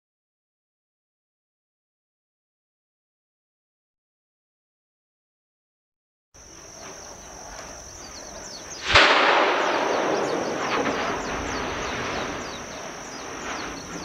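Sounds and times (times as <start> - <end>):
high-pitched insect drone: 6.4 - 14.0
volcanic explosion blast: 8.8 - 14.0.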